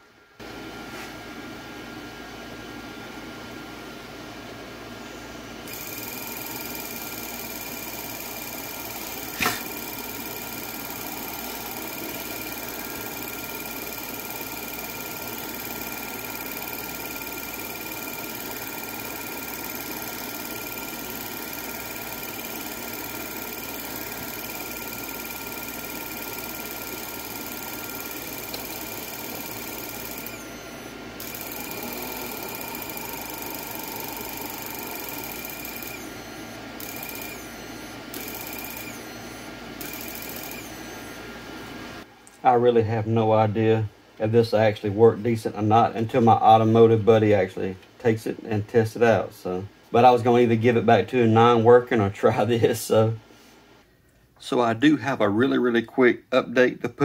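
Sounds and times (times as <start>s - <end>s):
electrical whine and hiss: 0.0s - 53.8s
sharp click: 9.3s - 9.7s.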